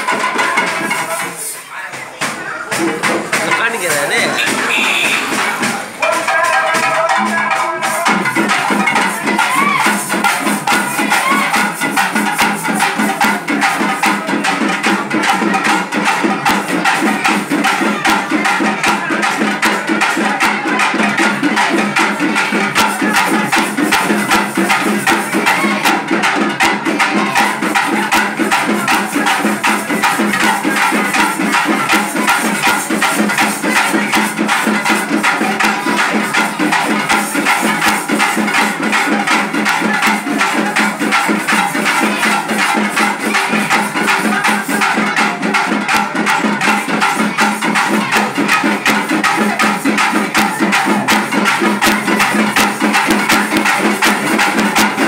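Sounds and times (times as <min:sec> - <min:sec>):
loud dance music: 0:02.7 - 0:12.4, 0:22.7 - 0:26.4, 0:35.4 - 0:54.6.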